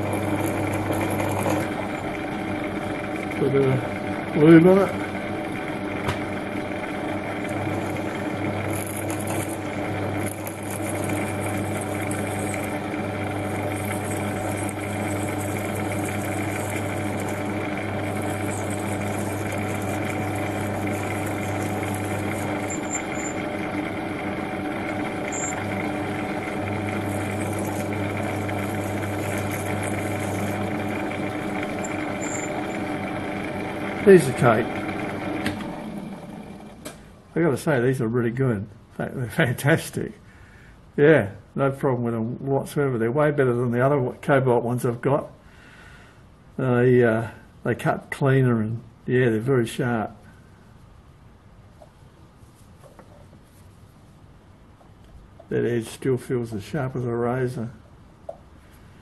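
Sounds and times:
metal lathe humming: 0.0s - 37.4s
drill cutting hiss: 7.4s - 23.8s, 24.5s - 35.8s.

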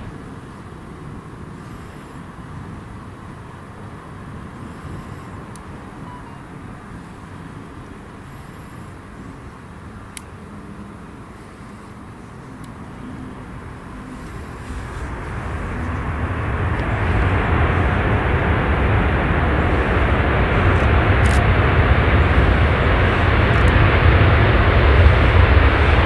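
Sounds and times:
jet engines roaring: 0.0s - 26.0s.

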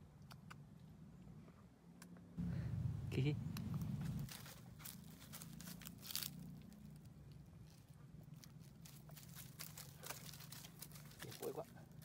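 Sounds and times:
low hum: 0.0s - 11.2s
dry leaves rustling and crackling: 3.8s - 12.0s.

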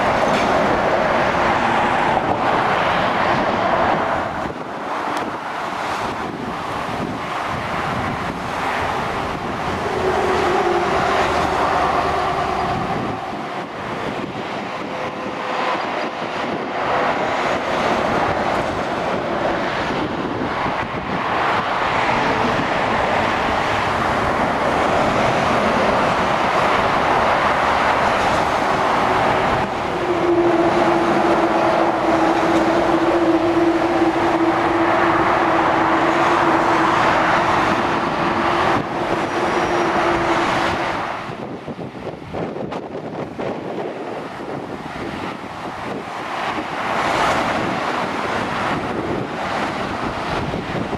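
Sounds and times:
lorry engine drone: 0.0s - 50.9s
traffic rushing past: 0.0s - 50.9s.

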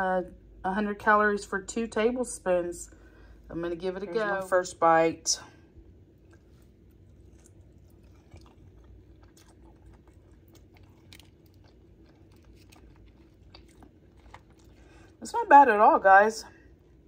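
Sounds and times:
chewing with soft crunches: 5.5s - 15.5s, 16.4s - 17.0s.

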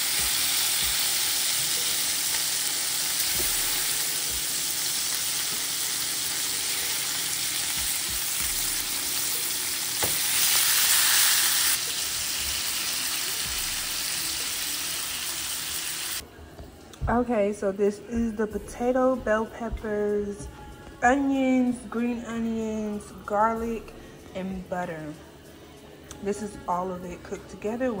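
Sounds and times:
food sizzling in a pan: 0.0s - 16.2s.

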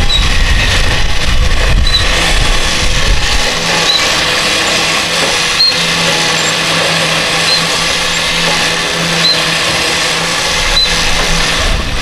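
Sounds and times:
short high squeak: 0.0s - 0.5s, 1.8s - 2.2s, 3.8s - 4.9s, 5.5s - 6.7s, 7.4s - 9.6s, 10.7s - 11.2s
electric winch running: 0.0s - 12.0s.

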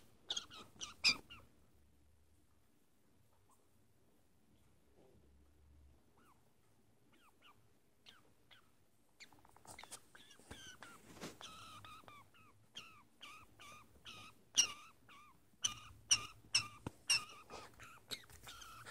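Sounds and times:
budgie chirping: 0.2s - 1.5s, 7.1s - 18.9s.

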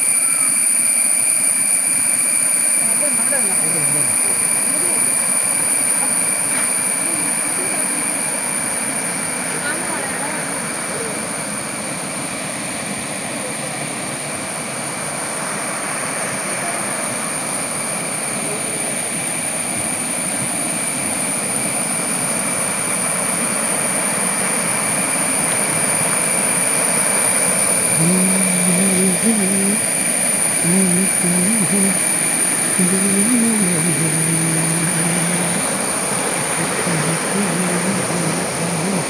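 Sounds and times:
high-pitched tone: 27.9s - 30.0s, 30.6s - 39.0s.

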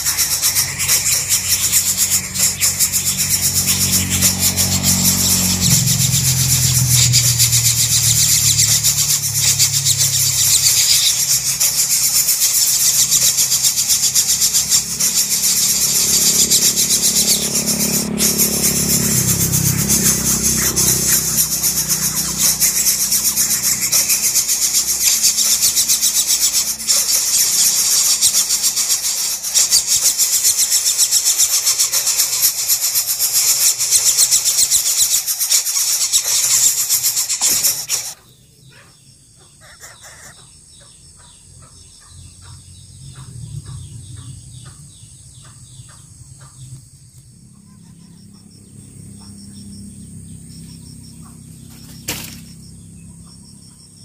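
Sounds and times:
motor engine running: 0.0s - 38.2s, 41.2s - 54.0s
nestlings rasping: 0.0s - 38.2s, 51.6s - 52.5s.

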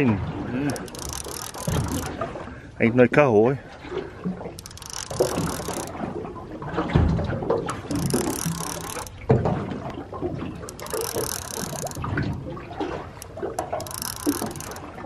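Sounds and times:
water sloshing against boat hull: 0.0s - 15.0s
fishing reel winding: 0.6s - 2.1s, 4.6s - 6.0s, 7.7s - 9.2s, 10.6s - 15.0s.

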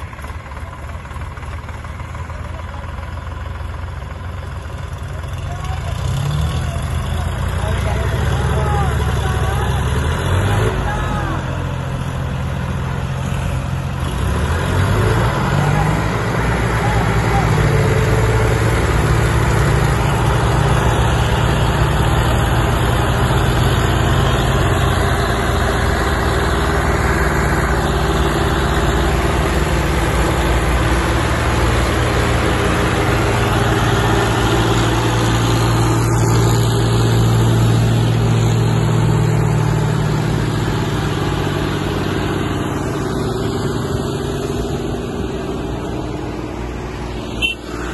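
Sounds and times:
tractor diesel engines running: 0.0s - 47.9s.

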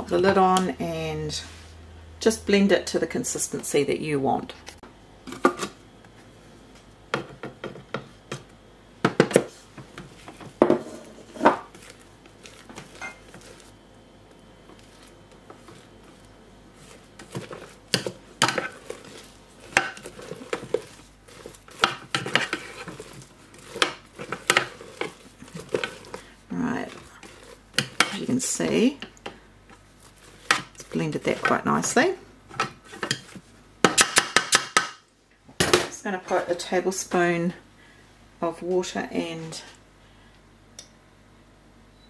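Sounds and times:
plastic spatula scraping steel bowl: 16.8s - 28.8s.

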